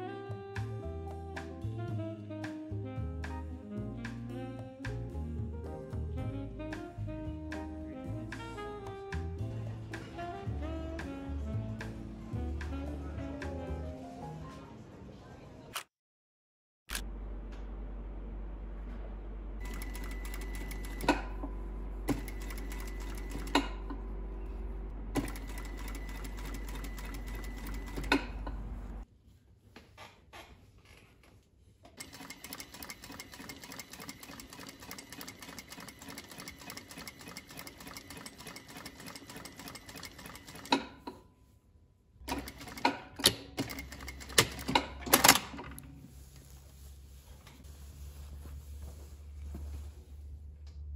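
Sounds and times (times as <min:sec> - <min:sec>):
sewing machine stitching: 0:19.6 - 0:21.5, 0:22.1 - 0:23.8, 0:25.1 - 0:28.6, 0:32.0 - 0:41.1, 0:42.3 - 0:45.8.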